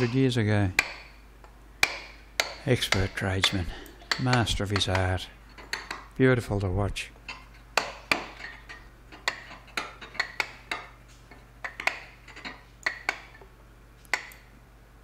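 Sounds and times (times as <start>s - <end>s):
mallet tapping caulking iron: 0.0s - 1.2s, 1.8s - 6.1s, 7.3s - 8.6s, 9.2s - 11.0s, 11.6s - 13.4s, 14.1s - 14.4s.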